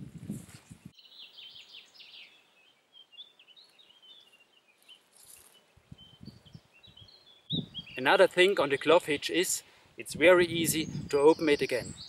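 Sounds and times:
brief rustle: 0:00.2 - 0:00.8, 0:04.8 - 0:05.6
songbirds chirping and trilling: 0:00.6 - 0:12.0.

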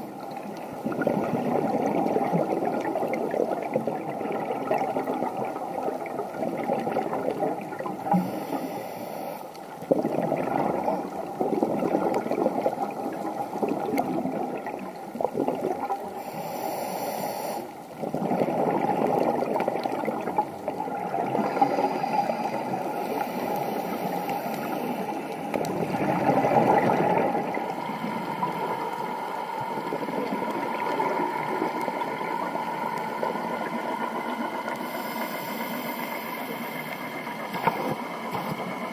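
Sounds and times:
gurgling exhaled bubbles underwater: 0:00.0 - 0:08.9, 0:09.5 - 0:16.8, 0:17.7 - 0:35.0
regulator hissing inhale: 0:08.1 - 0:09.7, 0:16.2 - 0:17.9, 0:21.4 - 0:25.5, 0:34.7 - 0:38.8.

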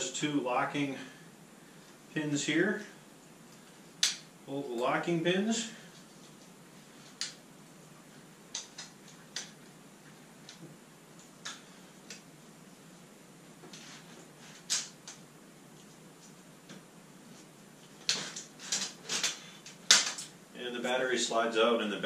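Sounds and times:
hands clicking and tapping plastic parts: 0:08.5 - 0:09.6.

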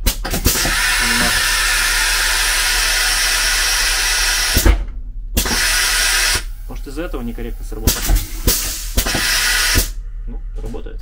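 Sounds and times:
compressed air hissing: 0:00.0 - 0:04.7, 0:05.4 - 0:10.0
valve click: 0:05.4 - 0:06.5.

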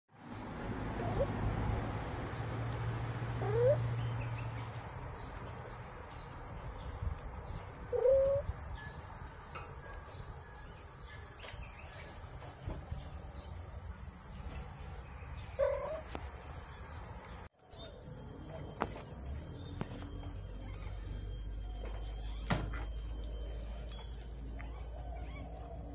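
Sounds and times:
high insect drone: 0:00.2 - 0:25.9
cat mewing: 0:03.4 - 0:03.8, 0:07.9 - 0:08.5.

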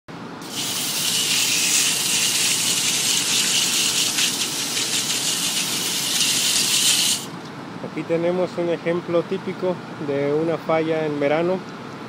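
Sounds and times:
water jet spraying on fins: 0:00.4 - 0:07.3.

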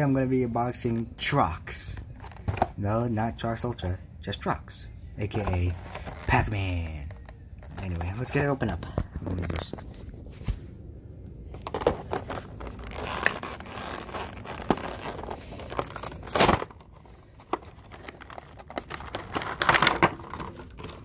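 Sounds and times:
plastic packaging crinkling: 0:05.3 - 0:10.2, 0:11.4 - 0:21.0
plastic packaging tearing: 0:11.6 - 0:21.0.

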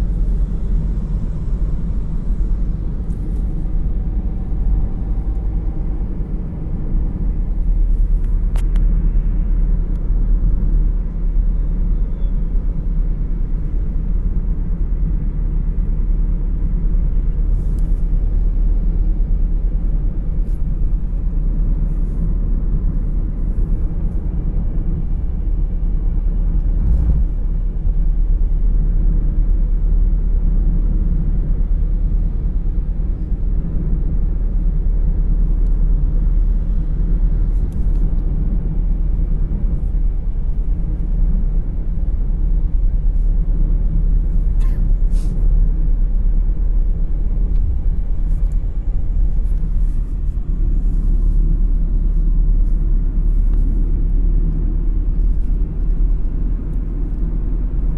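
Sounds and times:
road and wind noise in car: 0:00.0 - 0:57.9.

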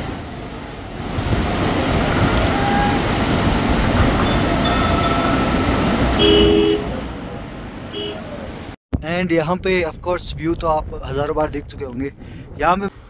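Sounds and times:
wind buffeting microphone: 0:00.0 - 0:06.2, 0:09.1 - 0:13.0
two-tone horn blast: 0:02.2 - 0:03.2, 0:06.2 - 0:07.0, 0:07.9 - 0:08.2.

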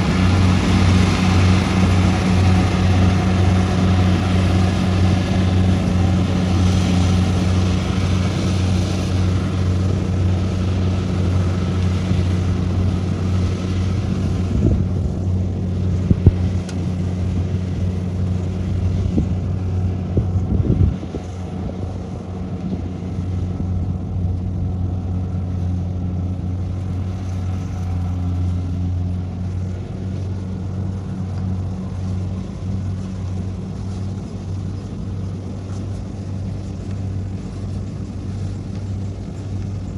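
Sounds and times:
diesel engine droning: 0:00.0 - 0:39.9.

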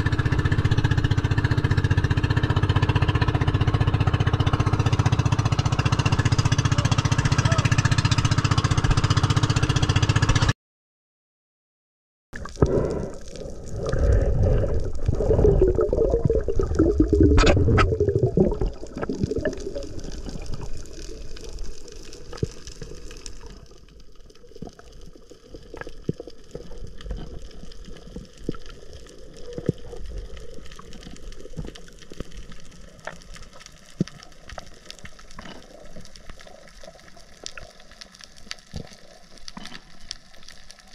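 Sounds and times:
boat motor: 0:00.0 - 0:10.5
underwater bubbles and gurgling: 0:12.4 - 0:40.9
underwater hiss: 0:12.5 - 0:16.4.

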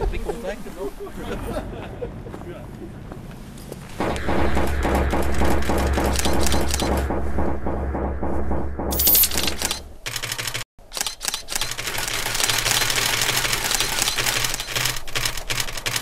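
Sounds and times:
camera shutters firing in bursts: 0:09.0 - 0:15.0.

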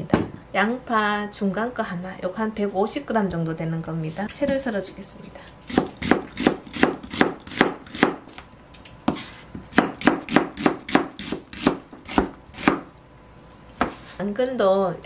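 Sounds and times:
knife chopping on cutting board: 0:05.7 - 0:08.2, 0:09.1 - 0:12.9, 0:13.8 - 0:14.2.

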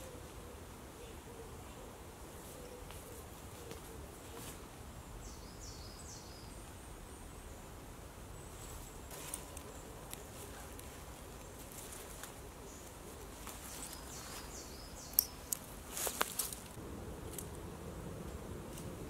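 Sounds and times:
faint birdsong: 0:00.0 - 0:16.8
scraping and rustling in leaves: 0:02.4 - 0:04.7, 0:08.5 - 0:17.6.

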